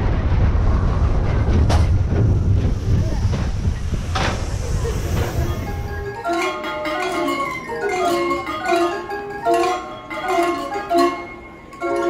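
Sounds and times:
tune on metal chimes: 5.1 - 12.0.

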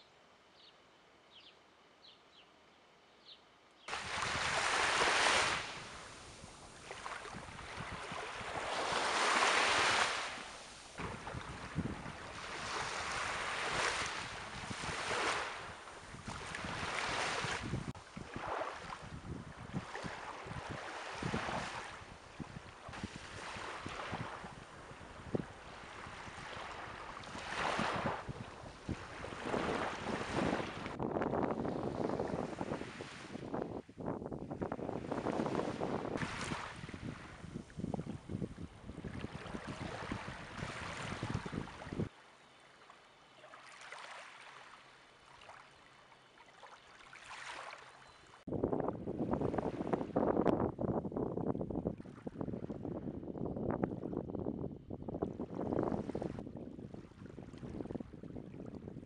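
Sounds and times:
small waves washing onto beach: 3.9 - 31.0, 34.7 - 48.5.

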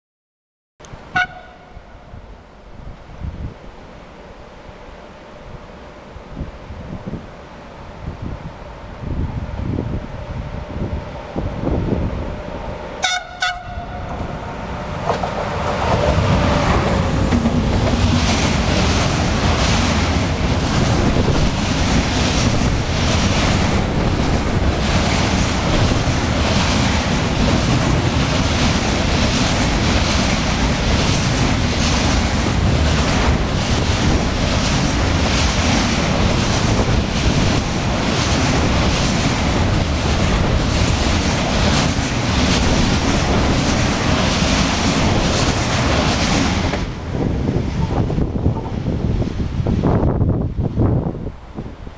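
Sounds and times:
freight train rumbling past: 0.8 - 51.9
train horn blast: 1.1 - 2.1, 13.0 - 14.3.

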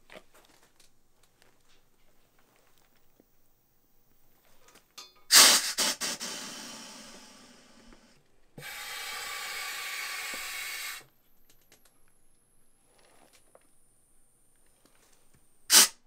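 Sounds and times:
air hissing through inflator: 5.3 - 11.1, 15.7 - 16.0.

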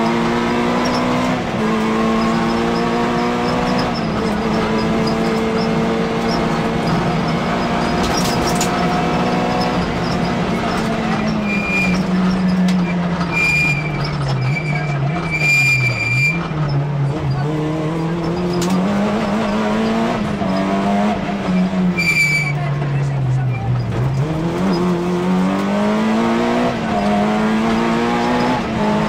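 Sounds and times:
rally car engine: 0.0 - 29.0
tyre squeals: 2.0 - 17.4, 21.5 - 22.8.

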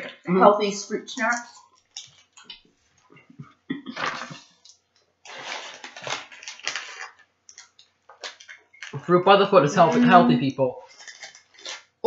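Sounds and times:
plastic wrapper crinkling: 4.0 - 9.0, 10.9 - 11.9.

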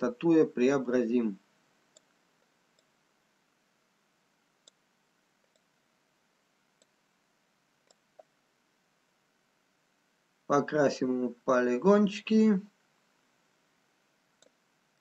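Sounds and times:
computer mouse clicks: 1.9 - 3.0, 4.6 - 4.8, 5.4 - 5.7, 6.8 - 7.0, 7.8 - 8.3, 14.4 - 14.6.

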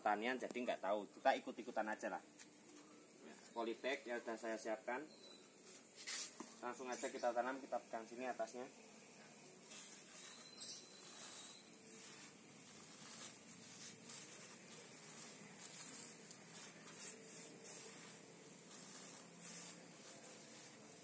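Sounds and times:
plastic bag rustling: 9.6 - 21.0.

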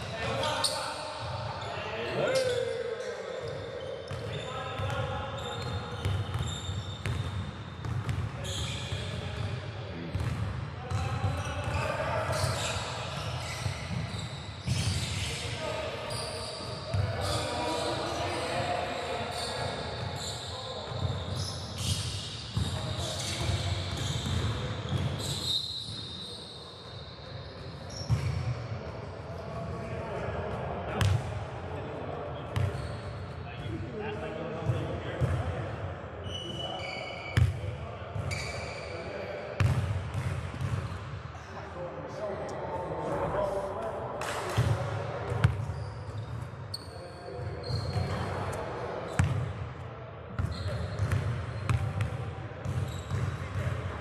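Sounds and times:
shoe squeak: 0.4 - 9.2, 11.4 - 28.4, 32.6 - 33.2, 36.2 - 37.5, 38.2 - 39.7, 45.5 - 48.5, 50.4 - 51.8, 52.6 - 53.6
basketball bouncing on gym floor: 39.6 - 40.9, 49.2 - 49.5, 50.4 - 53.7.

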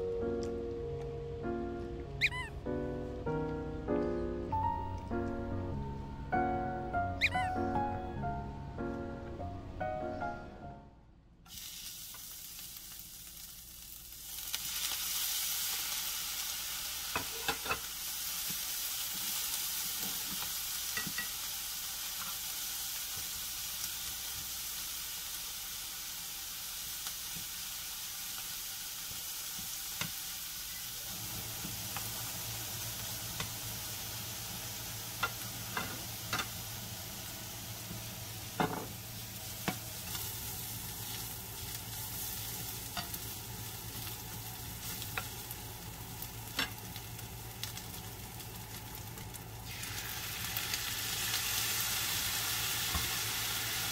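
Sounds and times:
beef sizzling in a frying pan: 11.5 - 53.9.

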